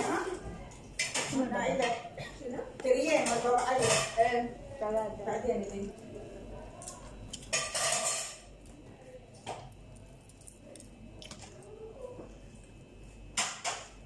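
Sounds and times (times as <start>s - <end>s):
plate and tableware clatter: 7.5s - 8.5s.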